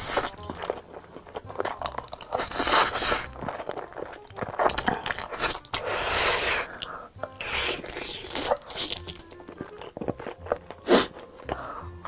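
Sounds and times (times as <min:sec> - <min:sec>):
noodles being slurped: 0:00.0 - 0:06.8
wet chewing: 0:00.0 - 0:12.0.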